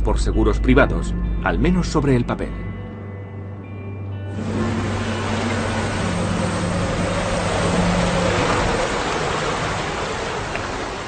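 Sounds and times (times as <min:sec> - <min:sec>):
low wind howl: 0:02.4 - 0:11.0
heavy rain: 0:04.3 - 0:11.0
hurricane wind: 0:04.3 - 0:11.0.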